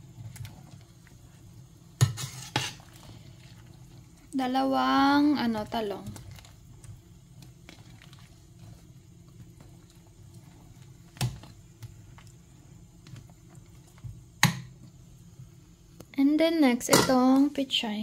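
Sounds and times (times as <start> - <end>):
metal ladle stirring soup in pot: 0.0 - 4.3
low steady hum: 0.0 - 18.0.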